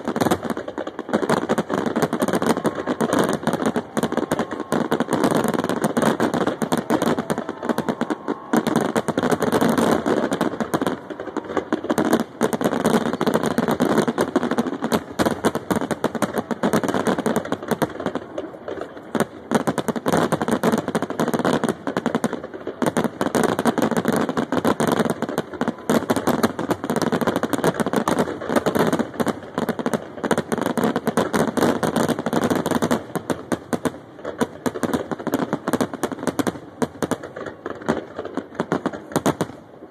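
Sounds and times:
fireworks bangs and crackles: 0.0s - 39.9s.

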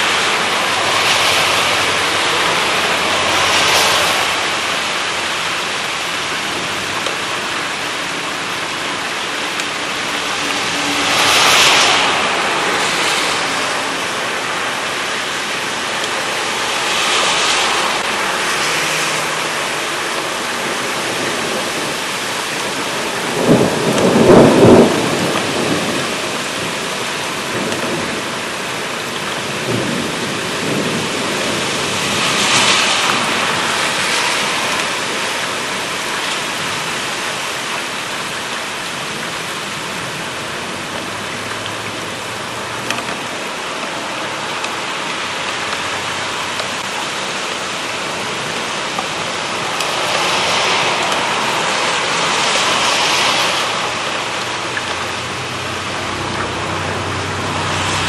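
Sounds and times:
heavy rain in gusty wind: 0.0s - 58.0s
thunder burst: 23.3s - 26.2s.

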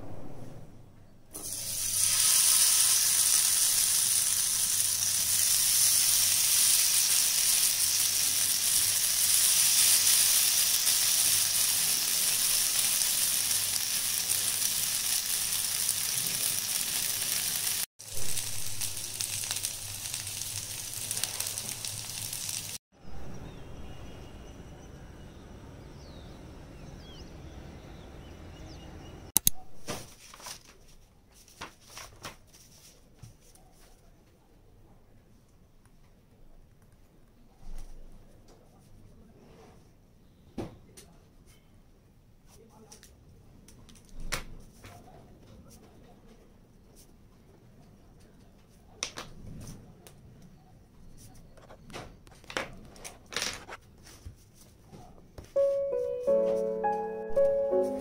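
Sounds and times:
skewers sizzling in hot oil: 1.4s - 22.8s.

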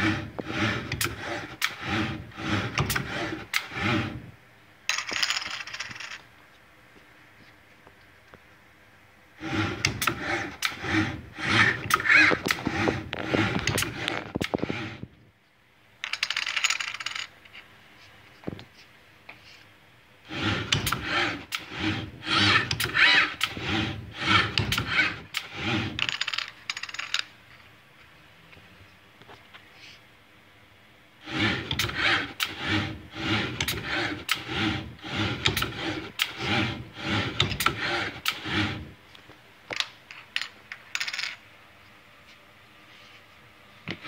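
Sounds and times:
robot arm motor whir: 0.0s - 4.3s, 9.4s - 15.1s, 20.2s - 26.2s, 31.2s - 39.0s.

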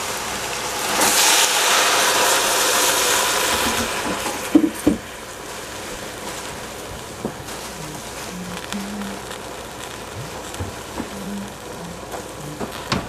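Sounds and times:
water splashing into hot pot: 0.0s - 7.7s
soft hiss from pot: 0.0s - 13.0s.

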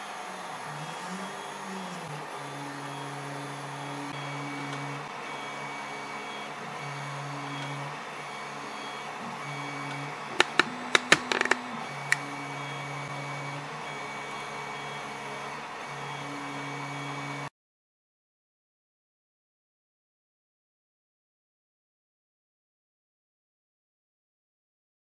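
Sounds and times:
sharp clicks: 10.4s - 12.2s.

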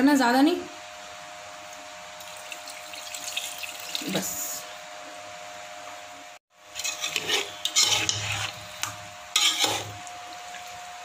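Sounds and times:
spoon stirring thick marinade: 6.8s - 10.0s.

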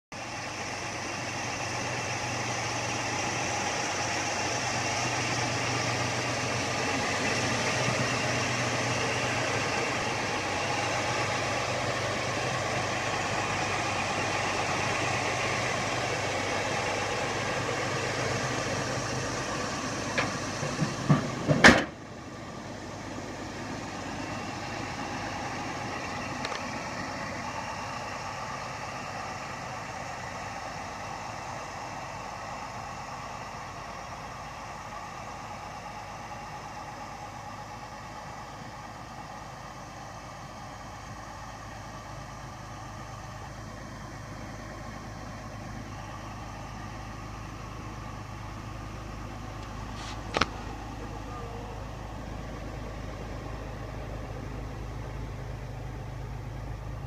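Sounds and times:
truck engine idling: 0.1s - 57.0s
hood slamming shut: 20.1s - 22.0s.

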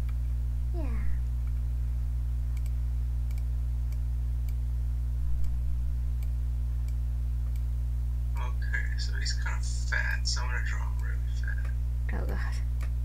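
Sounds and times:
low mains hum: 0.0s - 13.0s
computer mouse clicks: 2.6s - 4.6s.

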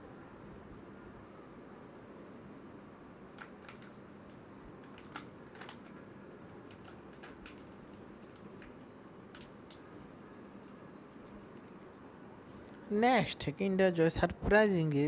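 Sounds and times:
sharp plastic click: 4.8s - 6.0s.

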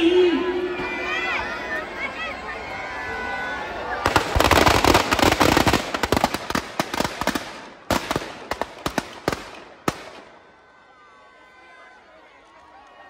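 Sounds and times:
firecrackers crackling and banging: 4.0s - 10.5s.

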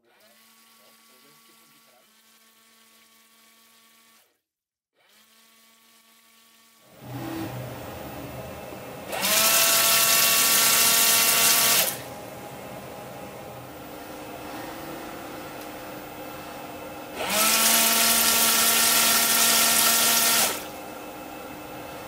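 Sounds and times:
washer pump whine: 5.3s - 22.0s
quiet machine noise: 11.9s - 17.2s.

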